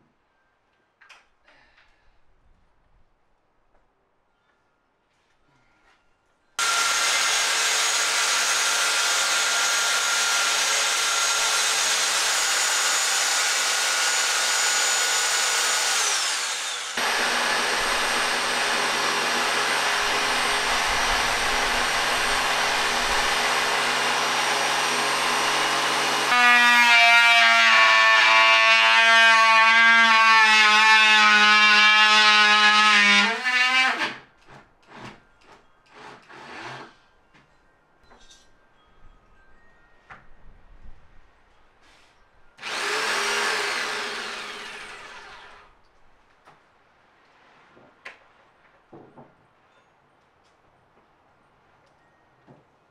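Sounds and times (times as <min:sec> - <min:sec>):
cordless drill whine: 0:06.6 - 0:26.6, 0:42.6 - 0:45.7
jigsaw cutting: 0:06.6 - 0:34.2, 0:42.6 - 0:45.6.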